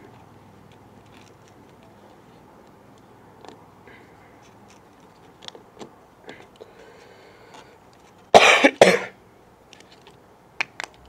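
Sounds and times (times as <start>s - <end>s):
man coughing: 8.4s - 9.2s.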